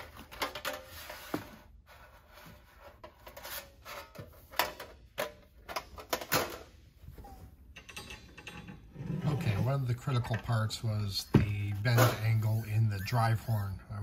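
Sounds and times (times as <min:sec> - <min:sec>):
sheet metal rubbing and sliding: 0:00.0 - 0:04.8, 0:08.4 - 0:10.2, 0:11.8 - 0:13.8.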